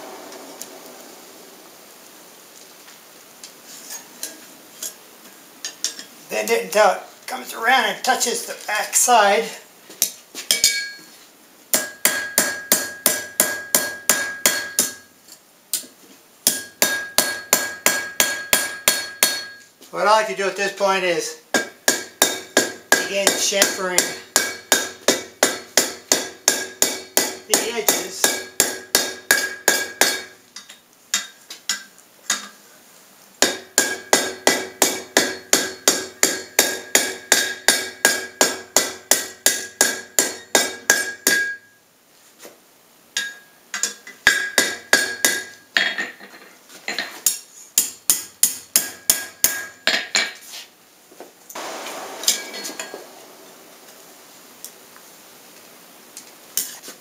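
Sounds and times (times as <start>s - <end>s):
hissing: 0.0s - 3.5s, 51.5s - 55.7s
hammer striking iron on anvil: 10.5s - 11.0s, 11.7s - 15.1s, 16.4s - 19.6s, 21.5s - 32.5s, 33.4s - 41.7s, 43.2s - 46.1s, 47.3s - 50.4s, 51.6s - 53.2s.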